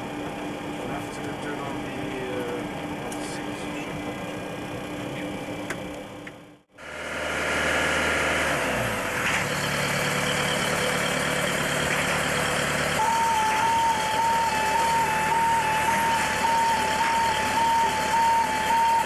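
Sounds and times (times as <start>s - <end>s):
cockpit machinery noise: 0.0s - 19.0s
two-pitch alternating tone: 10.0s - 19.0s.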